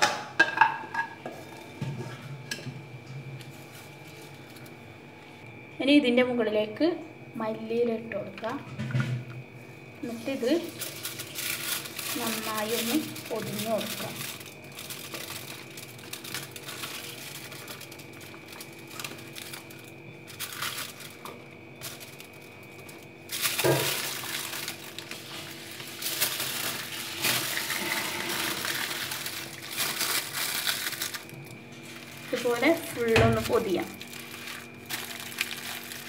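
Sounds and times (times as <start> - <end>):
faint steady hum: 0.0 - 36.0
aluminium foil crinkling: 3.4 - 4.8, 10.0 - 36.0
leaf rustling: 10.0 - 36.0.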